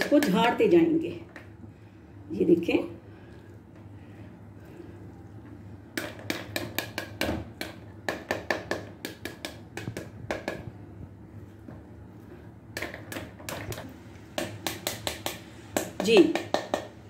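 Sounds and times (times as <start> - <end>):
spoon tapping pomegranate rind: 14.4 - 17.0.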